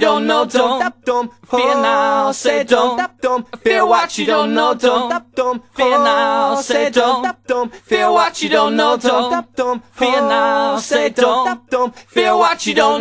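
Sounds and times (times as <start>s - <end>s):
person singing: 0.0s - 13.0s.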